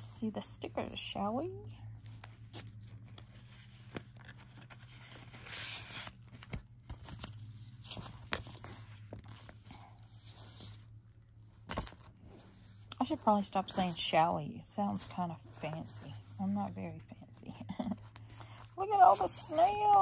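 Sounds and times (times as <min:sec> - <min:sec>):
low steady hum: 0:00.0 - 0:20.0
paper and plastic rustling: 0:02.1 - 0:10.8, 0:17.8 - 0:20.0.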